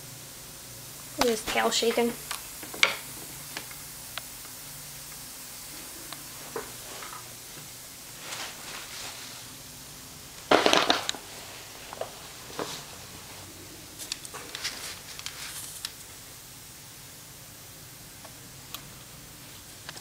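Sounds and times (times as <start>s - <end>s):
rustling: 5.7s - 9.5s, 10.5s - 16.1s.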